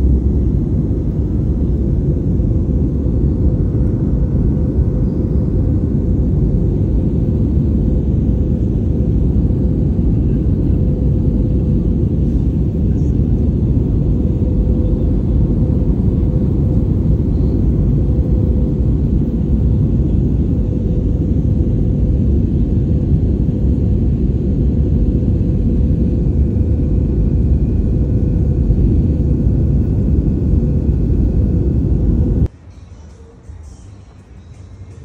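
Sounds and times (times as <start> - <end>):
airliner engine and airflow rumble: 0.0 - 32.5
faint steady hum: 0.0 - 35.0.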